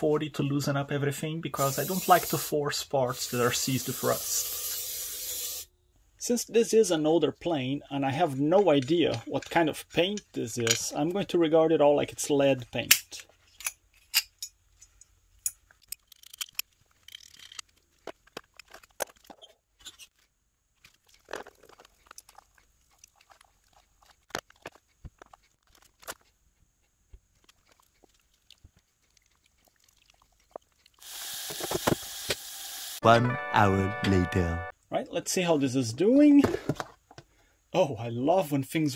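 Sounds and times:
steady hiss: 1.5 - 5.7.

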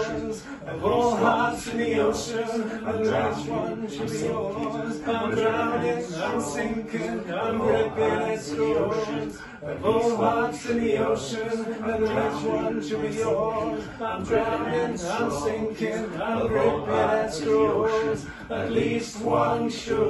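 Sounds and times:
voices singing: 0.0 - 20.0.

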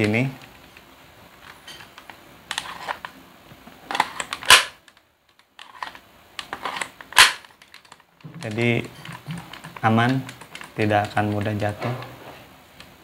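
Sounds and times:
plastic magazine clicks and rattles: 3.9 - 11.6.

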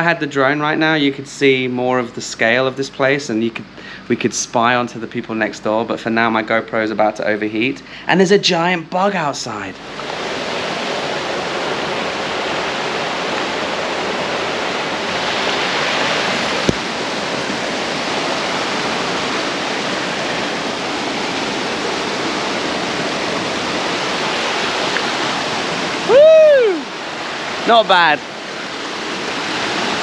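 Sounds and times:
stream rushing over rocks: 9.8 - 30.0.

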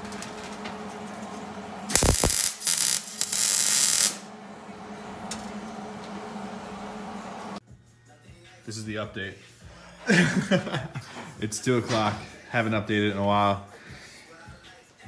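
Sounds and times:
steady low hum: 0.0 - 7.8
welding crackling hiss: 1.8 - 4.3.

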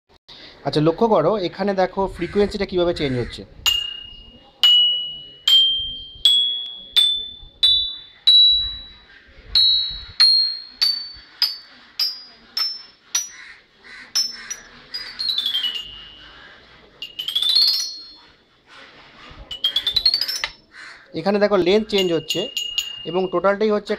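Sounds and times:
mallet sweeping across xylophone bars: 3.7 - 18.4
toy xylophone notes: 3.7 - 18.4, 19.5 - 20.7, 21.6 - 23.9.

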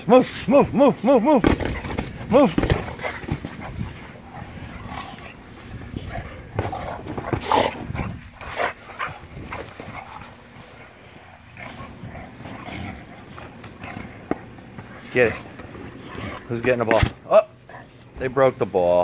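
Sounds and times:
dogs playing: 0.0 - 18.6
mouths and paws on rubber ball: 0.3 - 18.0.

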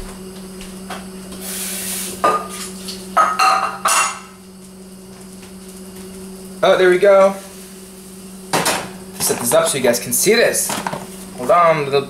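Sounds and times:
steady low hum: 0.0 - 12.0
metal cookware clanking: 3.2 - 4.3.

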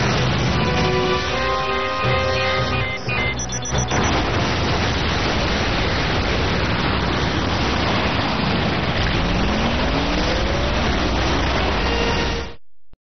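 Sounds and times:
loud explosion: 3.8 - 12.4.

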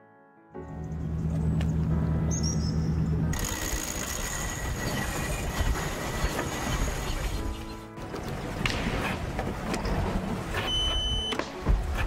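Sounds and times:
low engine hum: 0.6 - 3.4
rush of wind and water: 4.9 - 12.0.

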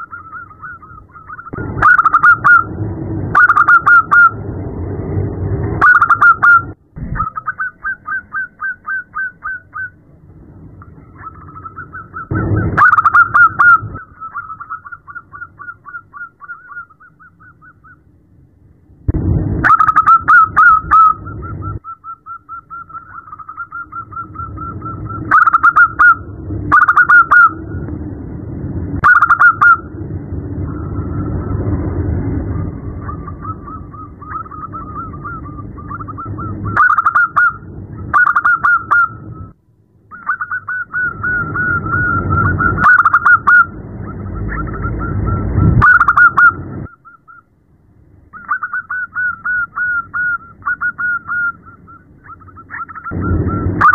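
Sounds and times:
dove calling in quick notes: 0.0 - 2.7, 3.4 - 4.4, 5.8 - 10.0, 11.0 - 18.1, 19.6 - 27.6, 29.0 - 29.8, 33.0 - 39.2, 40.1 - 47.5, 48.3 - 53.9.

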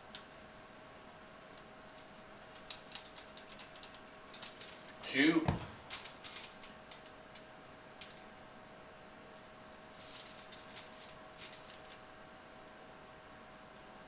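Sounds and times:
aluminium foil crinkling: 1.9 - 5.1, 5.7 - 8.3, 9.7 - 12.1.

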